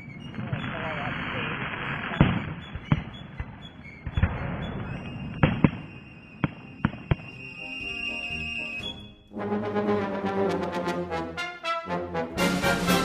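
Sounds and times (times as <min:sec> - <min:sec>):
fireworks bangs: 0:00.0 - 0:07.7
brass music: 0:07.6 - 0:13.0.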